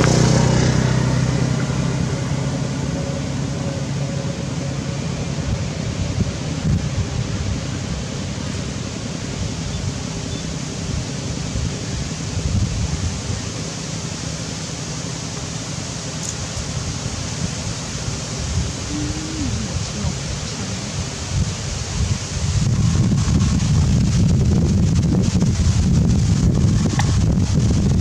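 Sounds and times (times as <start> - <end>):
wind noise on microphone: 0.0 - 14.2, 16.2 - 28.0.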